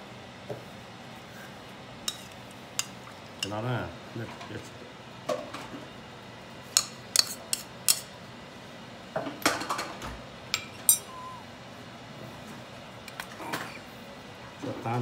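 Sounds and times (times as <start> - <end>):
metal spoon clinking on bowl: 10.6 - 11.2.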